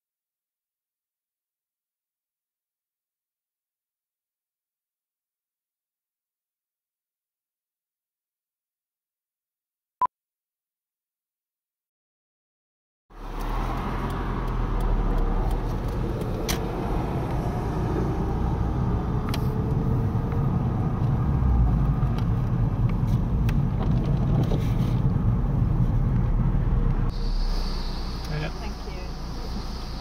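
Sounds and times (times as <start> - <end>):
road and engine rumble inside car: 13.2 - 30.0.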